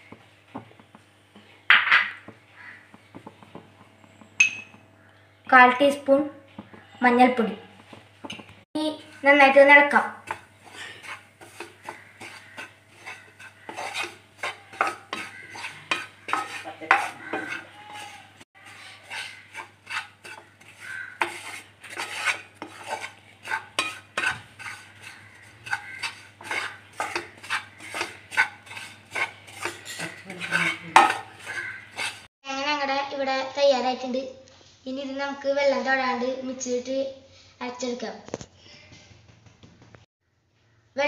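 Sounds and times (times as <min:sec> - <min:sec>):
wooden spatula scraping a pan: 0:06.6 - 0:32.3.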